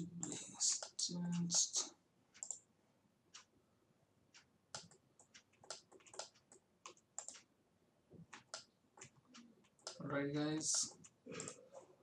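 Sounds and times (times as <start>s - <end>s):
computer mouse and keyboard clicks: 2.3s - 2.6s, 4.3s - 7.5s, 8.2s - 12.0s.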